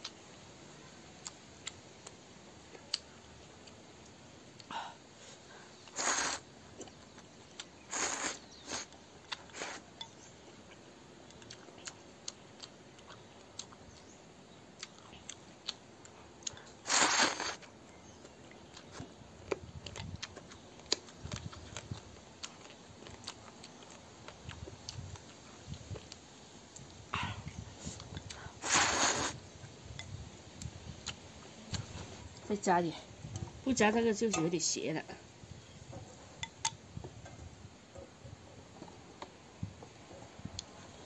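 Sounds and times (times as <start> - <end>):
chewing: 5.9 - 14.2, 14.8 - 29.3
person slurping noodles: 6.0 - 6.4, 7.9 - 8.9, 16.8 - 17.7, 28.6 - 29.4.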